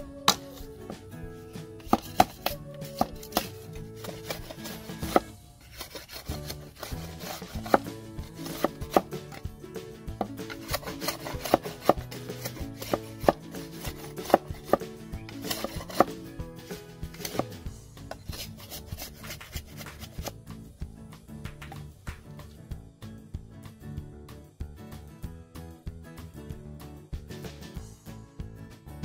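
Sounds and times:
background music: 0:00.0 - 0:29.0
machete chopping bamboo on wood: 0:01.8 - 0:09.4, 0:10.2 - 0:16.2, 0:17.1 - 0:20.3.

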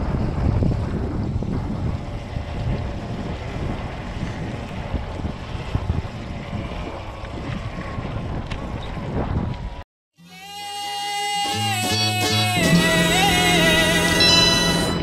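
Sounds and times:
electric dirt bike rumble: 0:00.0 - 0:09.8
wind buffeting microphone: 0:00.0 - 0:09.8
music: 0:10.2 - 0:15.0.

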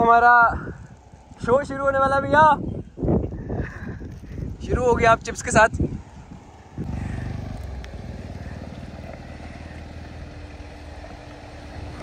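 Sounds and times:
car engine crawling over rocks: 0:04.0 - 0:12.0.

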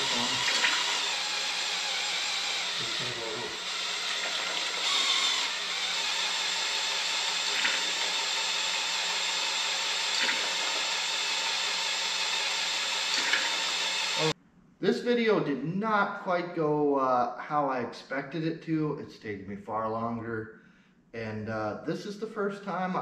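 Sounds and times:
motor whirring: 0:00.0 - 0:14.4.

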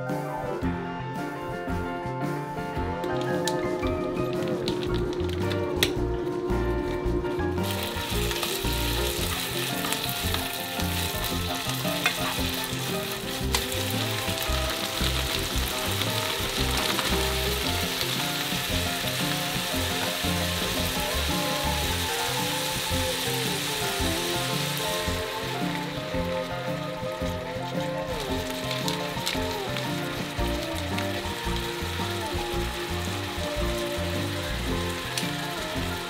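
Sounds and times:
meat sizzling in a frying pan: 0:07.6 - 0:36.0.

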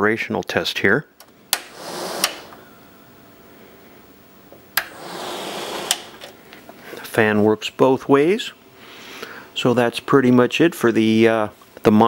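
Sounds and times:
fan motor and blades whirring: 0:01.6 - 0:02.8, 0:04.8 - 0:06.5.

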